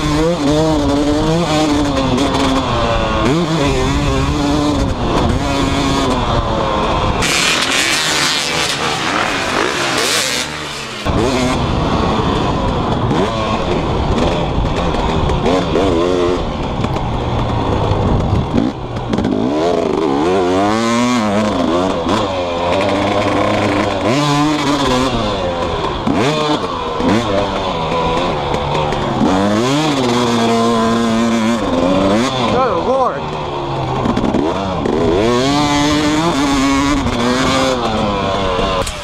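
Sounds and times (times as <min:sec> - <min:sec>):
two-stroke motorcycle engine revving: 0:00.0 - 0:39.0.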